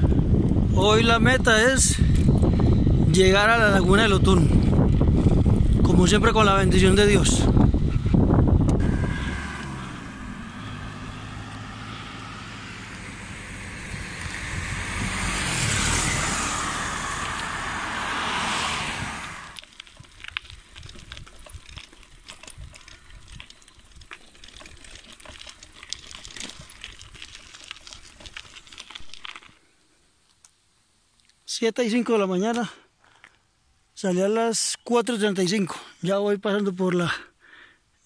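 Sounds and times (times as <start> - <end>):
vehicle engine humming: 0.0 - 29.2
traffic rushing past: 7.2 - 19.6.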